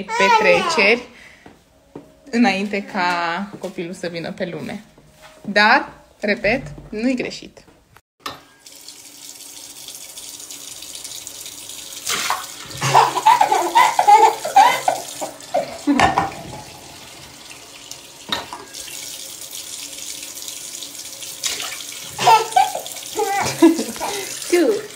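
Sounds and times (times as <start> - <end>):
toddler laughing and squealing: 0.0 - 1.0, 12.8 - 16.0, 22.2 - 24.3
tap water running into sink: 8.2 - 24.9.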